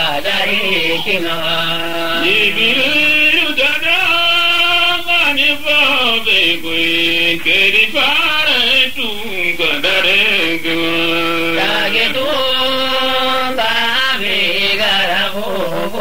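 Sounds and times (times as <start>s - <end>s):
person chanting long notes: 0.0s - 5.0s, 14.5s - 16.0s.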